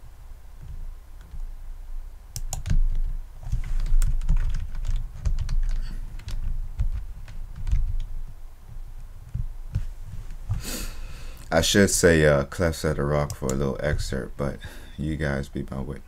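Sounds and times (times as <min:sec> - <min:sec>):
keyboard typing: 0:02.3 - 0:09.9.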